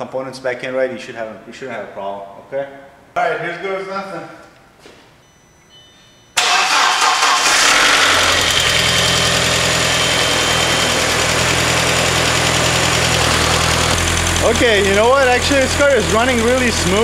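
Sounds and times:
car engine starting and idling: 6.4 - 17.0.

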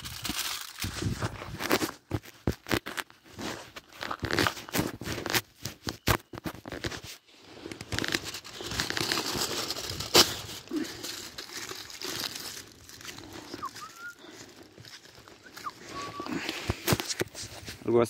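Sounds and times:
foil tearing from roll: 0.0 - 7.0, 7.8 - 14.2
aluminium foil crinkling: 0.0 - 17.8.

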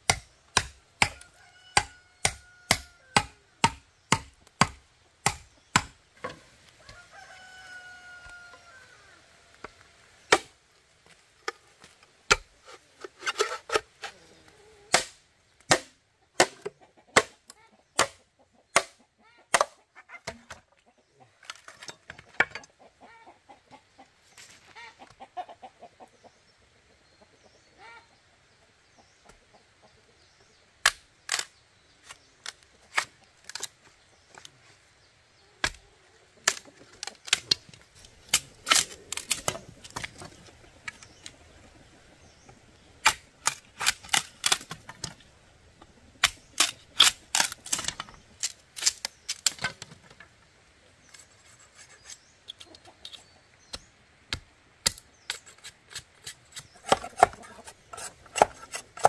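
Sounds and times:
chickens clucking: 11.1 - 15.1, 16.1 - 30.6, 32.2 - 54.4, 55.6 - 59.0.

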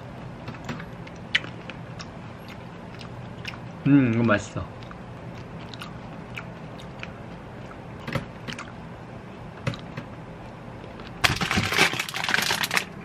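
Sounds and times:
low room hum: 0.0 - 13.0
faint chewing: 0.6 - 8.8
plastic bag crinkling: 11.2 - 13.0.

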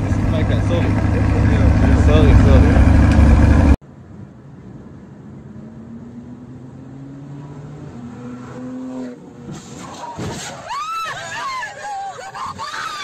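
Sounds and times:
loud low rumble: 0.0 - 3.8
car engine humming: 0.0 - 10.1.

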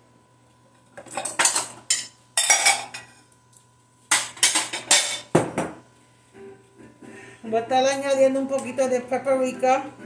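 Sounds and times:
cutlery and dishes clinking: 1.0 - 3.2, 4.1 - 5.3.

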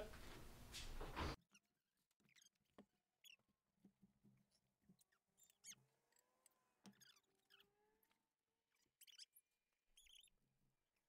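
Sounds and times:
tire rubber squeaking on rim: 1.4 - 3.4, 6.8 - 7.8, 10.0 - 10.3.

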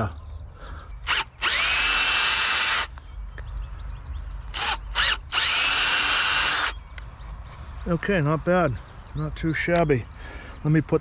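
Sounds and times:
power drill whine: 1.1 - 2.9, 4.6 - 6.7.

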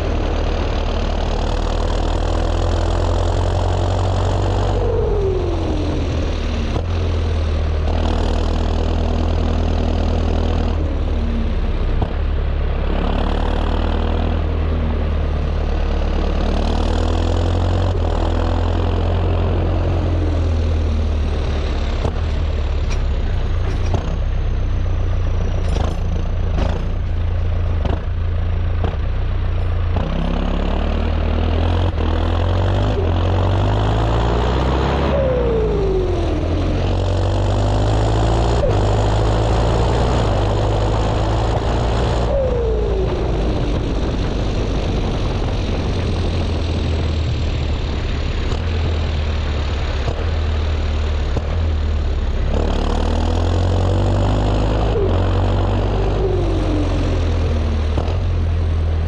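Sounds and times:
tractor diesel engine running: 0.0 - 59.0
falling turbo whine: 29.8 - 59.0.

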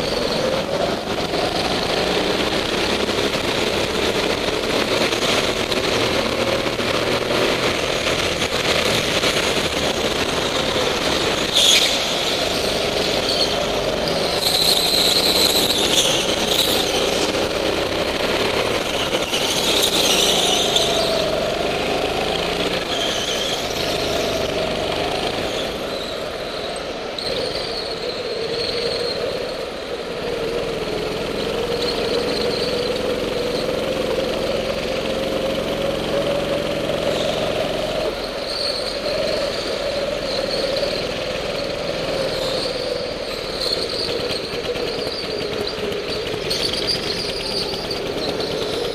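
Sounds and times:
go-kart engine running hard: 0.0 - 48.9
tyres squealing: 10.6 - 29.5.

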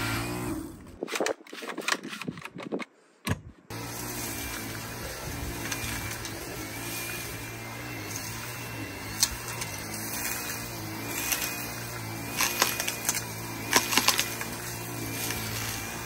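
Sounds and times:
vacuum cleaner whining: 3.7 - 16.0
grit rattling up vacuum wand: 3.8 - 16.0.

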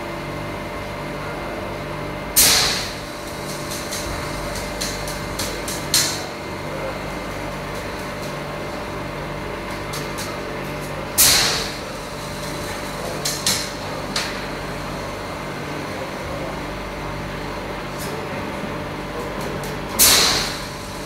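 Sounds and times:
steady mechanical hum: 0.0 - 21.0.

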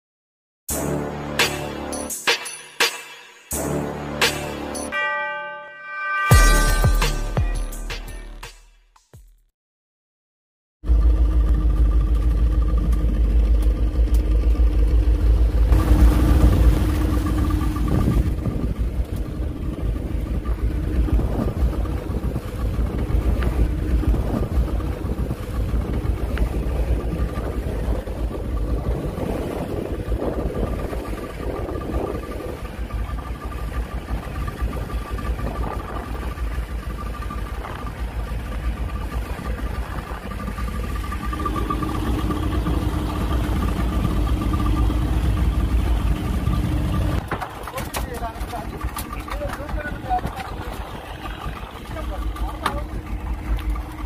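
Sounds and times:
boat engine rumbling: 10.8 - 54.0
wind: 10.8 - 54.0.

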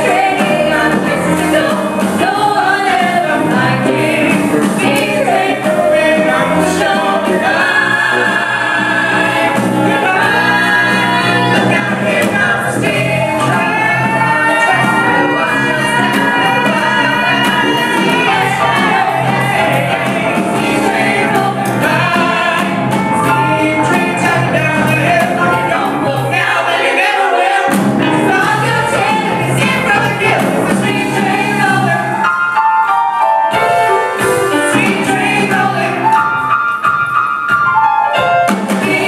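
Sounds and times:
person singing live: 0.0 - 32.6
piano and guitar band: 0.0 - 39.0.

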